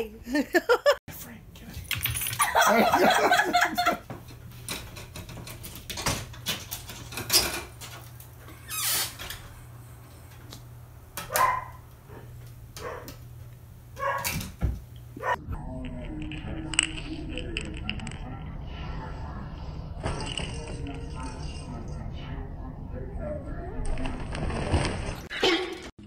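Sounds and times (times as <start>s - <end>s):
steady low hum: 9.3s - 25.2s.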